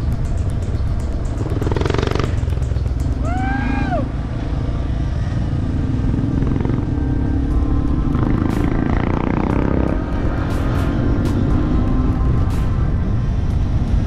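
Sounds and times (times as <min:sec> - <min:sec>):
motorcycle engine running: 0:00.0 - 0:14.0
rising and falling tone: 0:05.8 - 0:14.0.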